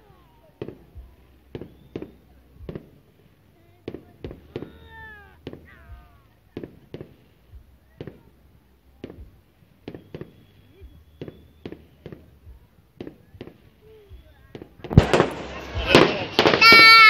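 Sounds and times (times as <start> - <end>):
fireworks bangs: 0.0 - 17.0
whistling fireworks glides: 0.0 - 17.0.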